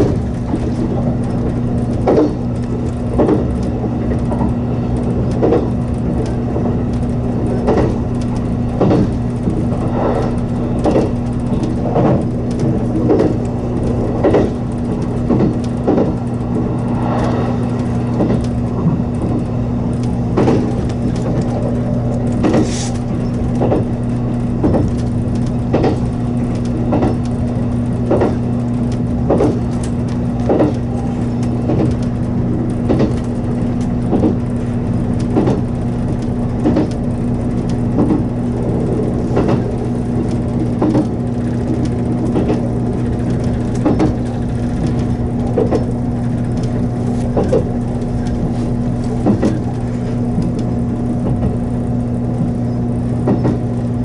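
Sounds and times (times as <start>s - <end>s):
electric train running hum: 0.0s - 54.0s
wheels clacking over rail joints: 0.0s - 54.0s.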